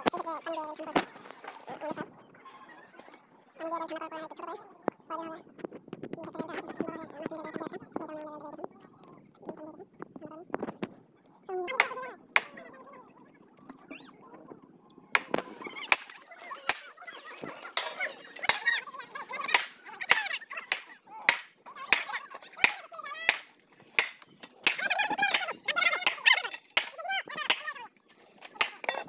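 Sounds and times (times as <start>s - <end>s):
steel tools striking rail: 15.2s - 16.9s, 17.6s - 18.7s, 19.6s - 27.6s, 28.4s - 29.0s.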